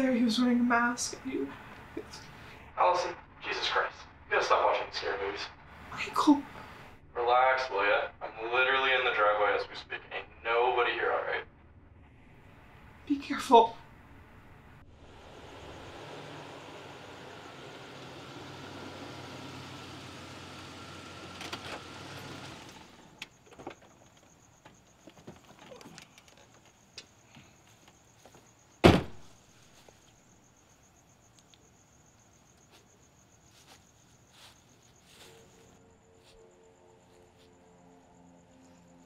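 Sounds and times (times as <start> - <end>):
crickets chirping: 0.0 - 39.0
car engine running: 13.9 - 25.0
car door slamming: 28.8 - 29.3.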